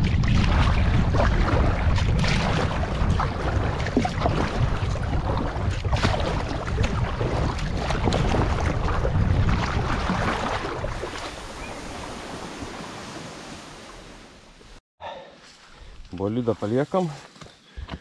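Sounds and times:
wind rumble on microphone: 0:00.0 - 0:13.6
water splashing: 0:00.0 - 0:14.8.

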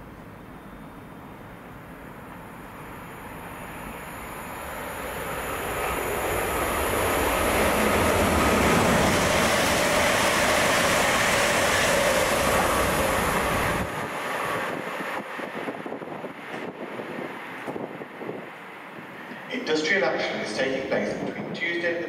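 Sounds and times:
train wheels rumbling on rail: 0:02.2 - 0:19.5.

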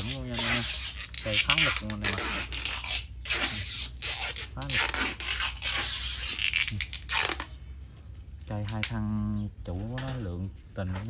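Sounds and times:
rough rubbing and scraping: 0:00.0 - 0:08.3.

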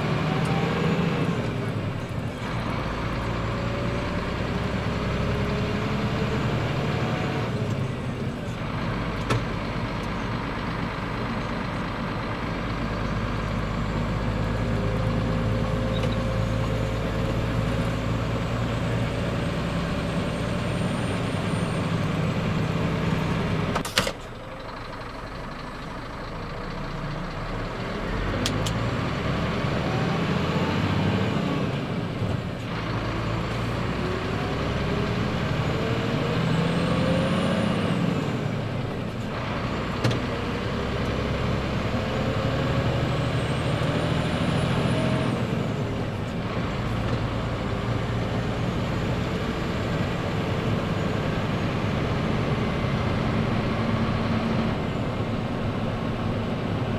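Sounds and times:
truck diesel engine accelerating: 0:00.0 - 0:56.9
sharp click: 0:23.8 - 0:24.2.

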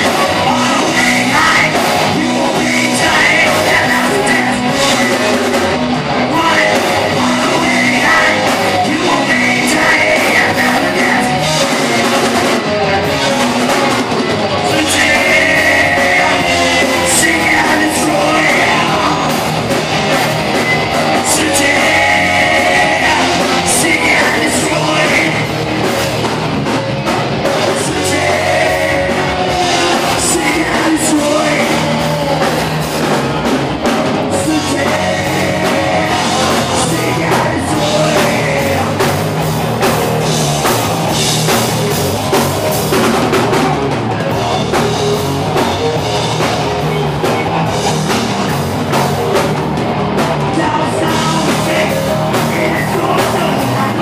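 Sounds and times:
person singing: 0:00.0 - 0:19.7, 0:20.6 - 0:26.0, 0:27.4 - 0:39.9, 0:50.4 - 0:54.0
rock band playing: 0:00.0 - 0:54.0.

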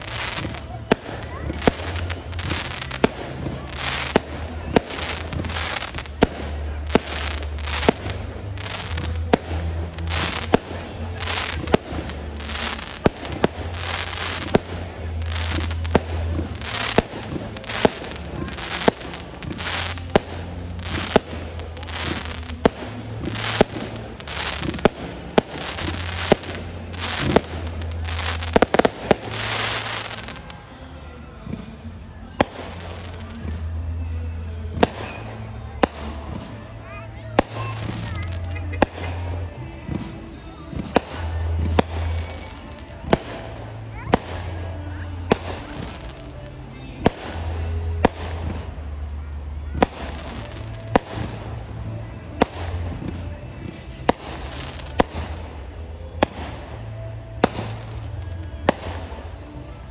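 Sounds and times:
fireworks crackling: 0:00.0 - 0:59.9.

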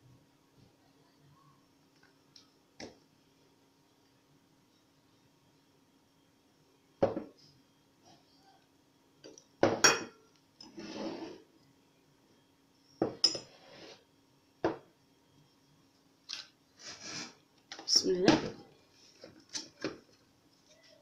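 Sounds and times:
glass clinking on table: 0:09.6 - 0:10.2.

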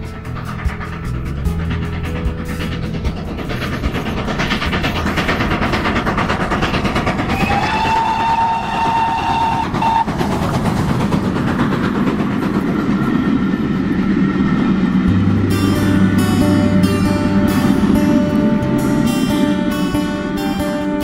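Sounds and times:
steam train clatter: 0:00.0 - 0:21.0
train whistle: 0:07.3 - 0:10.2.

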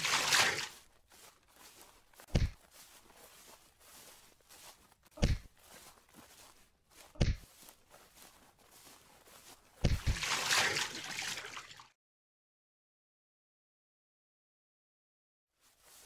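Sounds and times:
water splash: 0:00.0 - 0:00.8, 0:09.8 - 0:11.9
dull thuds: 0:02.2 - 0:02.8.

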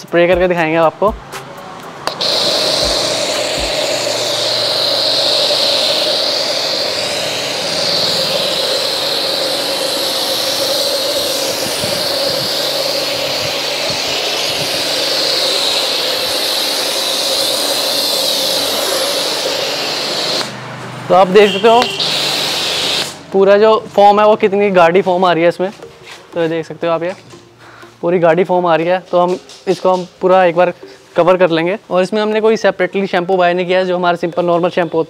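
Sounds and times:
pressure washer motor whine: 0:02.0 - 0:23.3
pressure washer spray hiss: 0:02.0 - 0:23.3.

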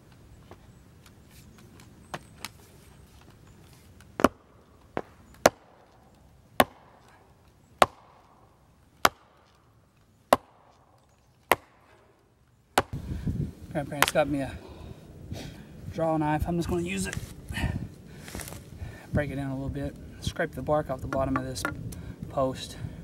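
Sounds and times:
axe striking wooden post: 0:04.2 - 0:05.9, 0:06.6 - 0:07.1, 0:07.8 - 0:08.4, 0:09.0 - 0:09.5, 0:10.3 - 0:10.9, 0:11.5 - 0:11.9, 0:12.8 - 0:13.0.

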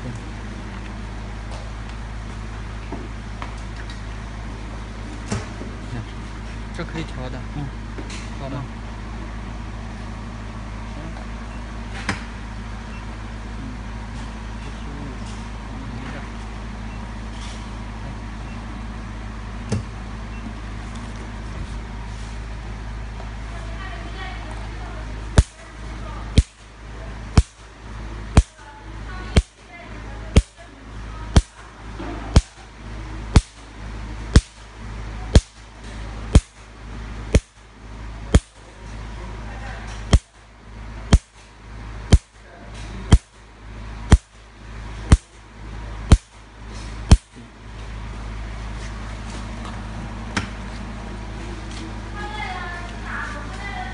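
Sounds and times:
machine humming: 0:00.0 - 0:53.9
laser pulse sharp snap: 0:25.3 - 0:25.6, 0:26.3 - 0:26.7, 0:27.3 - 0:27.7, 0:28.3 - 0:28.6, 0:29.3 - 0:29.6, 0:30.4 - 0:30.6, 0:31.3 - 0:31.6, 0:32.3 - 0:32.6, 0:33.3 - 0:33.7, 0:34.3 - 0:34.7, 0:35.3 - 0:35.7, 0:36.3 - 0:36.7, 0:37.3 - 0:37.7, 0:38.3 - 0:38.6, 0:40.1 - 0:40.4, 0:41.1 - 0:41.5, 0:42.1 - 0:42.4, 0:43.1 - 0:43.4, 0:44.1 - 0:44.4, 0:45.1 - 0:45.4, 0:46.1 - 0:46.4, 0:47.1 - 0:47.4.

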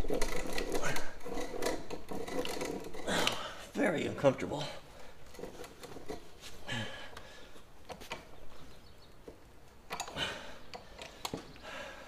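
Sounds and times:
hand drill gears clicking: 0:00.0 - 0:03.5, 0:09.9 - 0:11.4.

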